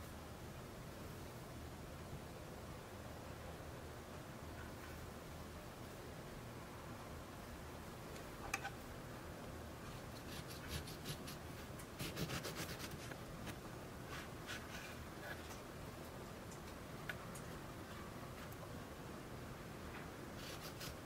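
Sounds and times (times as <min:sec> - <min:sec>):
knife sawing through cake: 0:10.3 - 0:11.4, 0:12.0 - 0:13.1, 0:20.4 - 0:21.0.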